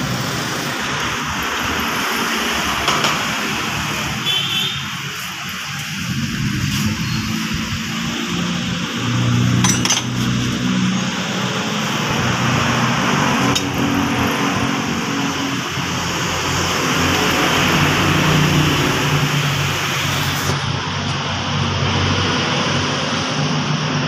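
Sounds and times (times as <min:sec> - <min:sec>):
metallic clinks: 0:09.6 - 0:10.2.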